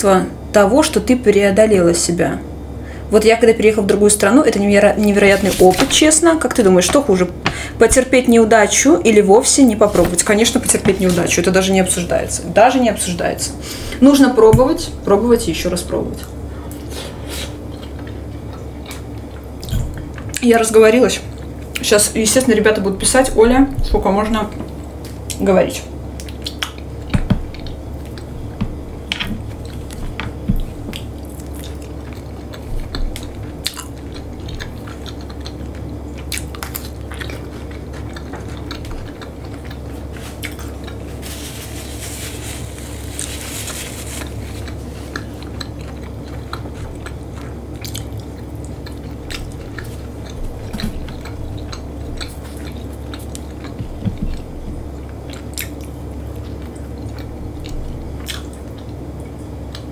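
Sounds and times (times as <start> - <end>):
steady low hum: 0.0 - 59.9
chewing and biting: 26.2 - 41.3, 44.2 - 59.9.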